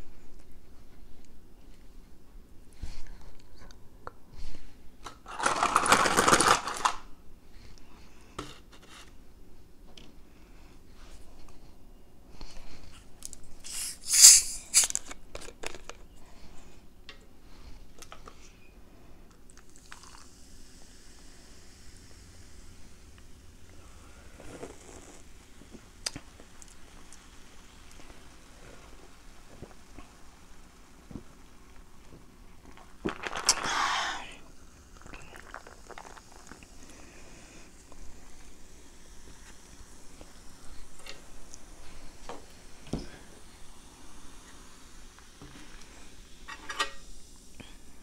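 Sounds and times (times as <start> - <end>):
cola poured over ice: 5.3 - 7.0, 19.5 - 22.7, 23.7 - 42.2
carbonation hiss: 12.4 - 16.8, 17.4 - 48.0
fizzing hiss: 13.6 - 14.9, 19.5 - 48.0
bottle cap twisted open: 13.7 - 16.0.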